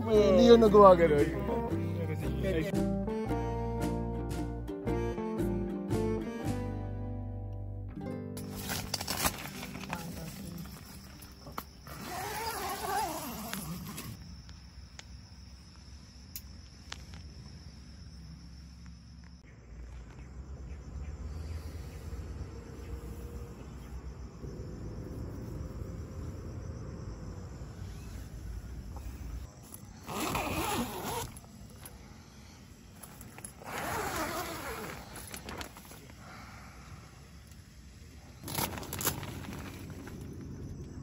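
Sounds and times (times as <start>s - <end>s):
tent zipper rasping: 11.8s - 14.2s, 29.6s - 31.8s, 33.0s - 36.0s, 38.4s - 40.1s.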